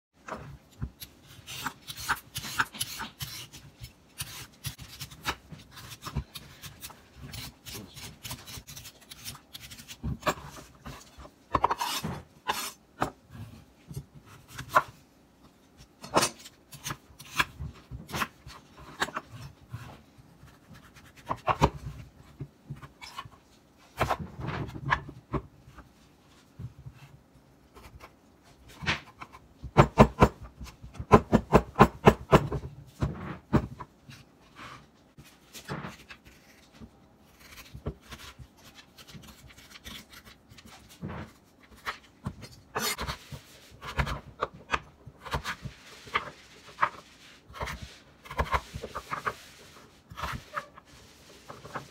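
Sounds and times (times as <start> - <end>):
vegetable peeler scraping: 1.0 - 10.6.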